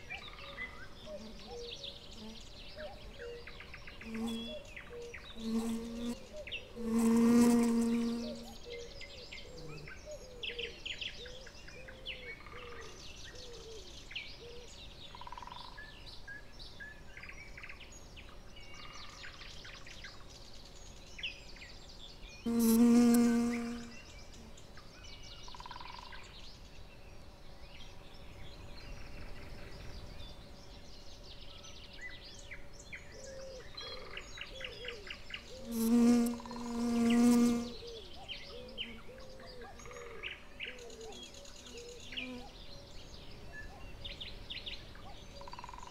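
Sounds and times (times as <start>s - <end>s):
small birds chirping: 0.0s - 45.9s
honeybee buzzing: 4.1s - 4.5s, 5.3s - 8.6s, 22.5s - 24.0s, 35.6s - 37.9s.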